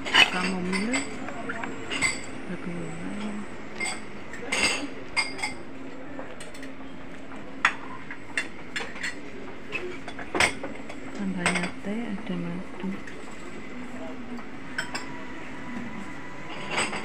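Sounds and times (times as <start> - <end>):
crockery and cutlery clinking: 3.2 - 5.7, 14.7 - 15.2, 16.5 - 17.0.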